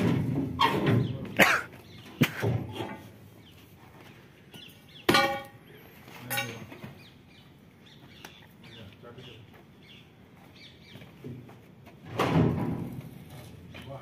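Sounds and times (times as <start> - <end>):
metallic clang ringing: 5.1 - 5.7, 6.3 - 6.8.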